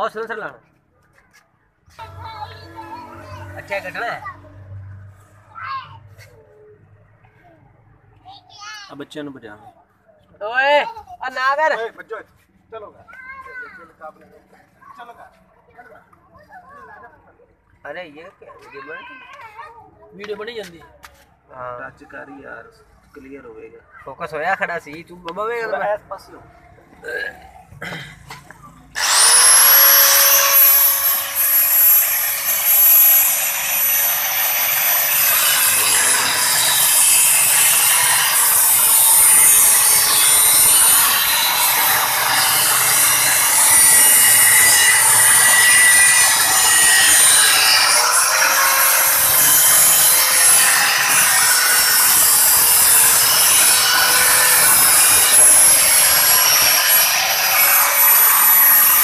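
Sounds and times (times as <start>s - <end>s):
angle grinder cutting steel pipe: 2.0s - 4.2s, 28.9s - 59.0s.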